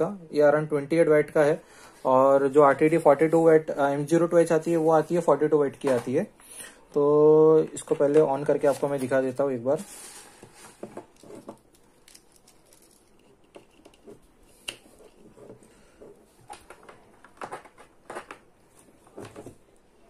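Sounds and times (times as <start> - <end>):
small plastic parts clicking: 11.1 - 15.2.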